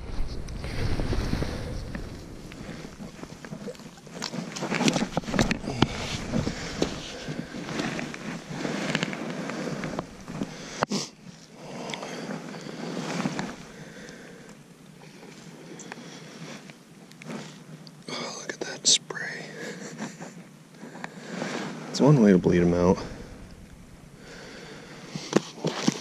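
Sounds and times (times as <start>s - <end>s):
handling a fish: 0.0s - 18.2s.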